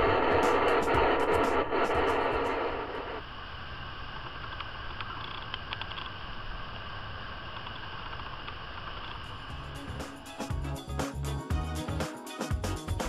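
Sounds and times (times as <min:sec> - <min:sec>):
loud noisy sound: 0:00.0 - 0:04.5.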